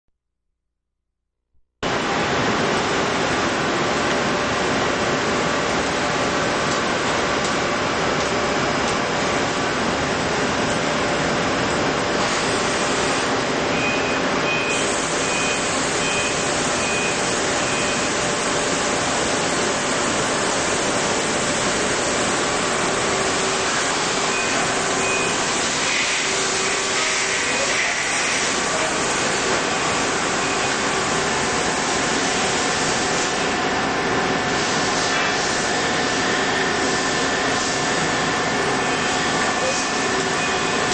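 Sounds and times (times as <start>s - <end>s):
machinery hiss and hum: 1.8s - 40.9s
short high beeps: 13.7s - 18.1s.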